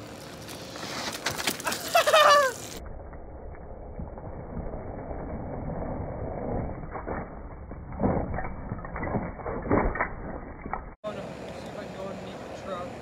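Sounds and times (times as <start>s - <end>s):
bike crashing onto concrete: 0.8s - 2.8s.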